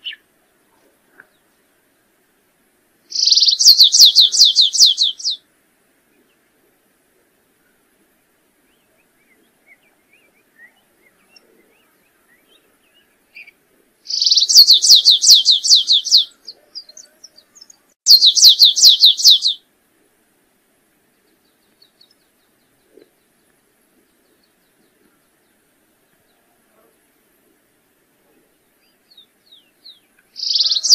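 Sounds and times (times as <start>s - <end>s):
faint bird chirps: 0.0s - 2.1s, 3.1s - 5.4s, 8.6s - 19.6s, 21.1s - 27.0s, 28.2s - 30.9s
finch singing trills: 3.1s - 5.4s, 8.7s - 19.6s, 28.8s - 30.9s.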